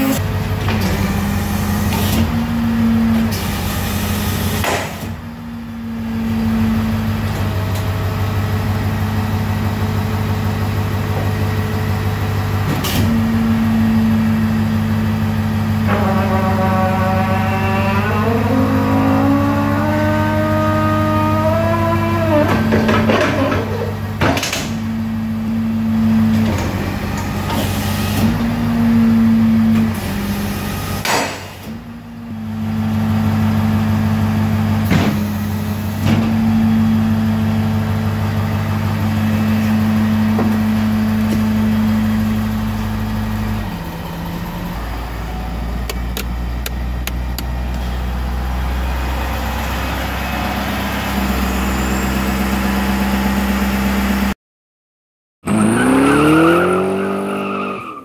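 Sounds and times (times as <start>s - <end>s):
hydraulic pump humming: 37.4s - 51.5s.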